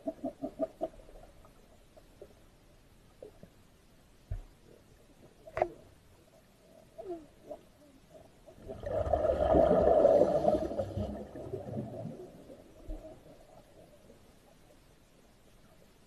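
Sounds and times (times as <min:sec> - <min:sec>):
diver exhaling bubbles underwater: 0:08.6 - 0:13.2.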